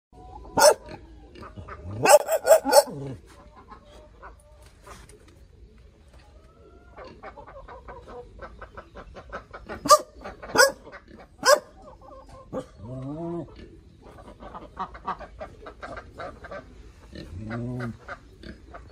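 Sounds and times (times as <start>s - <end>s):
dog barking: 0.6s - 0.9s, 2.0s - 3.1s, 9.8s - 10.8s, 11.4s - 11.8s.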